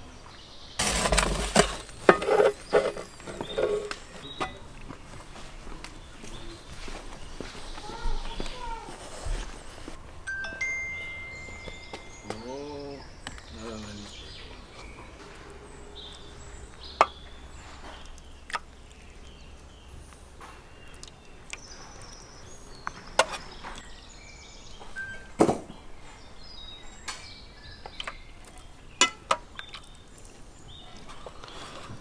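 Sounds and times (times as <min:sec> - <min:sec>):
faint high chirps: 0:10.2 - 0:18.3, 0:24.8 - 0:26.2
metal spoon clinking on tray: 0:29.0 - 0:29.3.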